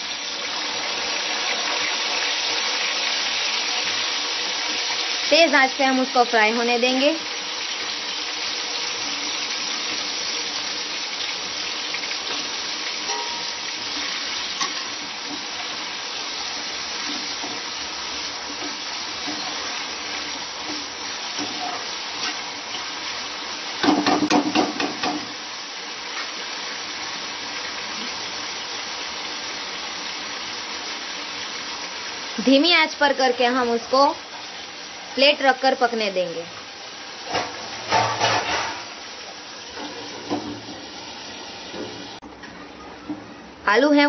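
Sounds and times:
potatoes sizzling in hot oil: 0:00.0 - 0:42.3
metal utensil scraping a pan: 0:12.2 - 0:15.5, 0:20.7 - 0:22.4, 0:37.4 - 0:38.9.

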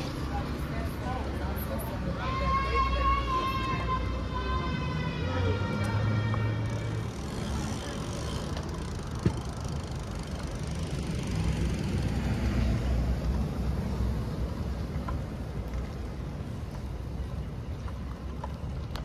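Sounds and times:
city street traffic hum: 0:00.0 - 0:19.0.

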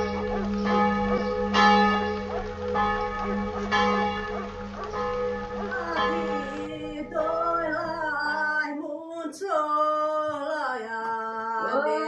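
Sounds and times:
church bell tolling: 0:00.0 - 0:08.4.

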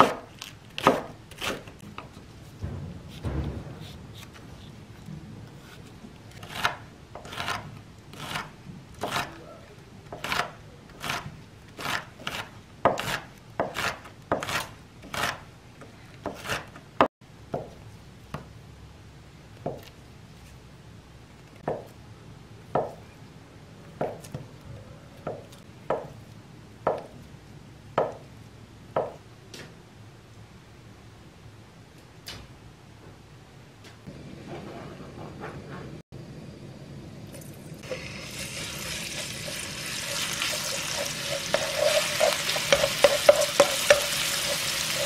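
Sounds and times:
knife chopping on wooden board: 0:00.0 - 0:01.7, 0:11.8 - 0:15.4, 0:41.0 - 0:45.0.

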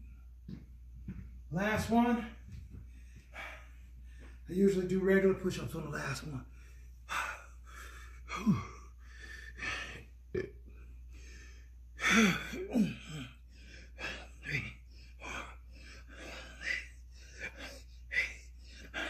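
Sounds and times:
man breathing hard: 0:02.4 - 0:04.5, 0:06.4 - 0:19.0
man grunting: 0:08.3 - 0:08.8, 0:12.0 - 0:13.4, 0:14.0 - 0:15.5.

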